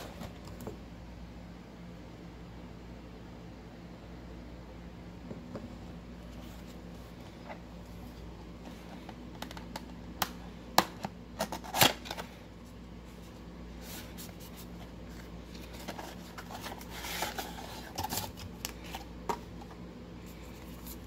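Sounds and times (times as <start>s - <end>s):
steady low hum: 0.0s - 21.0s
cardboard and paper handling: 11.4s - 21.0s.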